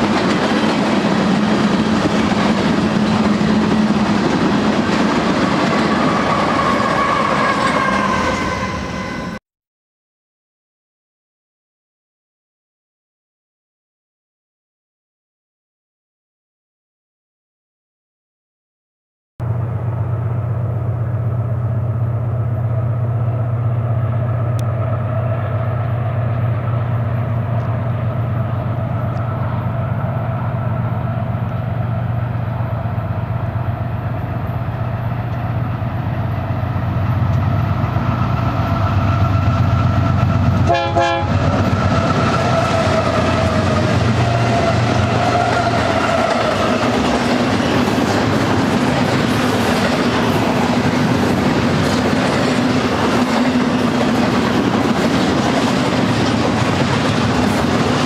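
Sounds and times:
diesel locomotive drone: 0:00.0 - 0:09.4, 0:19.4 - 0:58.0
freight cars rumbling and clattering: 0:26.0 - 0:58.0.

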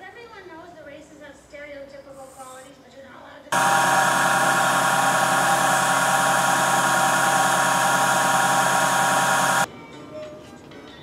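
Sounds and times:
metal lathe motor whine and hum: 0:03.6 - 0:09.7.

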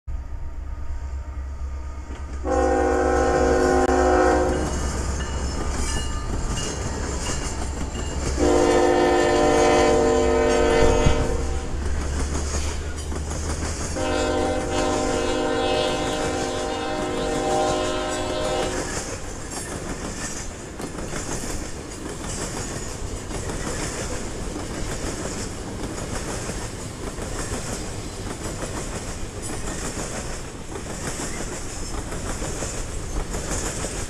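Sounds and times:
locomotive air horn blasts: 0:00.2 - 0:04.8, 0:08.4 - 0:11.8, 0:14.0 - 0:19.2
train cars rumbling and clattering: 0:01.4 - 0:34.0.

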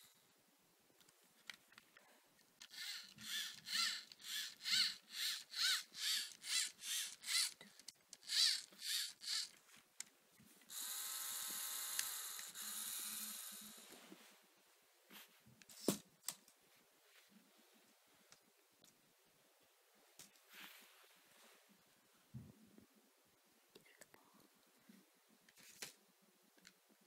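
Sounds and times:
small electric motor whining: 0:02.6 - 0:09.6, 0:10.7 - 0:13.8.

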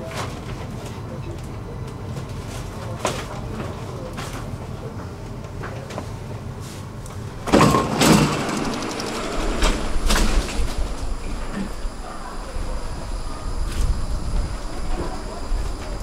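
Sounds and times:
low rumble of train: 0:00.0 - 0:16.0
train sliding doors closing: 0:07.1 - 0:16.0.

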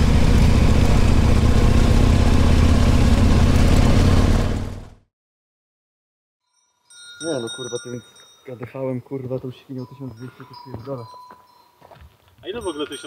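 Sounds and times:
motorcycle engine cruising: 0:00.0 - 0:05.0.

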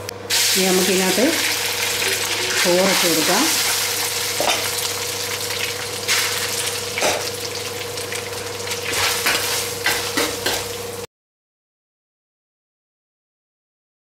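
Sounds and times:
rice sizzling in a pan: 0:00.3 - 0:11.1.

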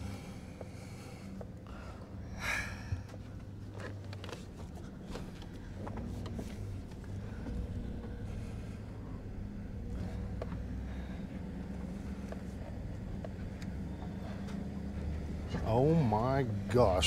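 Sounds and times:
loud breath close by: 0:00.0 - 0:03.2
van engine running low: 0:00.0 - 0:17.0.

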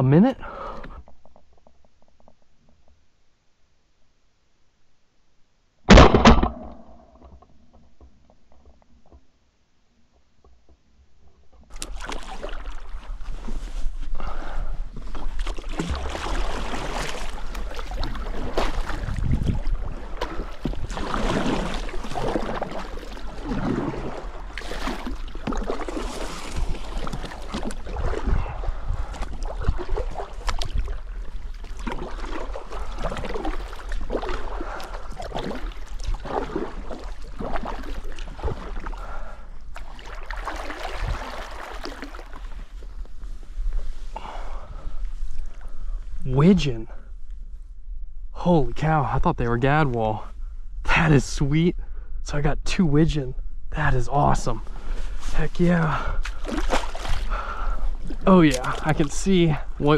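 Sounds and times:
paddle strokes splashing water: 0:11.7 - 0:45.8, 0:54.6 - 0:59.9.

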